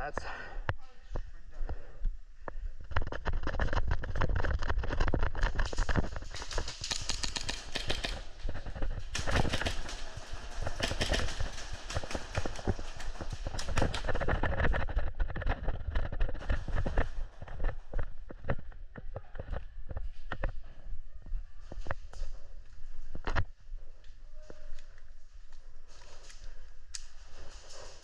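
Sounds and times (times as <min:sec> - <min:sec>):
running footsteps: 0:02.8 - 0:20.9.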